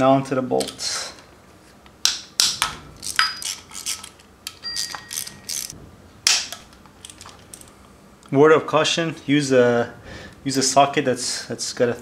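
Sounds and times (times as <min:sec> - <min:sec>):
ratchet clicking on metal: 0:02.4 - 0:05.8.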